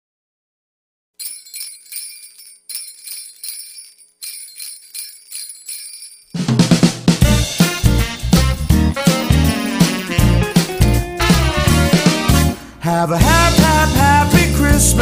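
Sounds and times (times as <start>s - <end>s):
jingle bells shaken: 1.2s - 6.6s, 7.4s - 12.0s
band with bass and drums: 6.5s - 12.6s, 13.2s - 15.0s.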